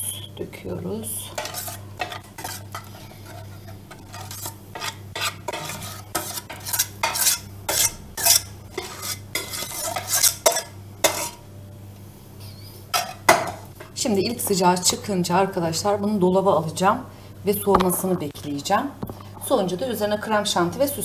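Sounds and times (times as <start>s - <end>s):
spoon scraping a glass bowl: 1.4s - 11.4s.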